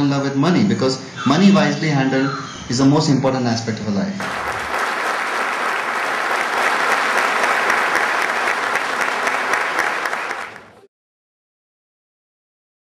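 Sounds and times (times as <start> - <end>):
crowd applauding: 4.2 - 10.9.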